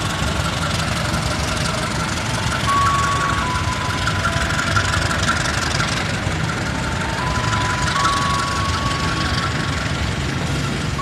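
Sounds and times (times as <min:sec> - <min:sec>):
locomotive engine rumbling: 0:00.0 - 0:11.0.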